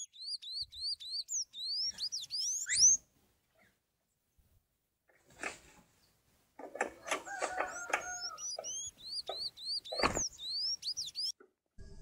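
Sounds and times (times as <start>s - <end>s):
songbird whistling squeaky notes: 0.0s - 3.0s, 7.4s - 11.3s.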